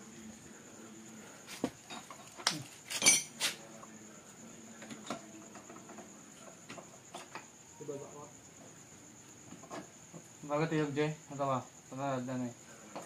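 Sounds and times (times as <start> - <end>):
metal tools clinking: 1.9 - 3.4.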